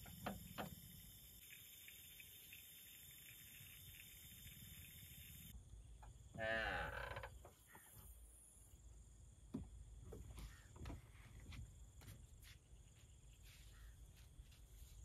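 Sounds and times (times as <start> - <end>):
insects chorus: 0.0 - 11.5.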